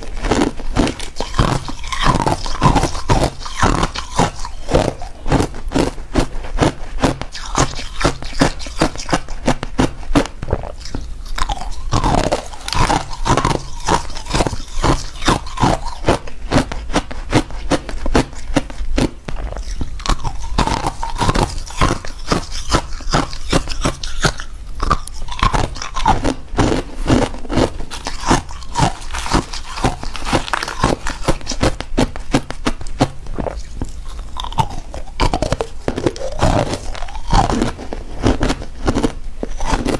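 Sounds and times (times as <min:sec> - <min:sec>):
crushed ice crunching: 0:24.8 - 0:31.8, 0:33.4 - 0:39.9.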